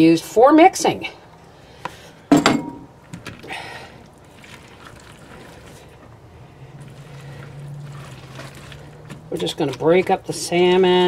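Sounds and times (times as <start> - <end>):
spatula stirring in plastic bowl: 6.8 - 10.2.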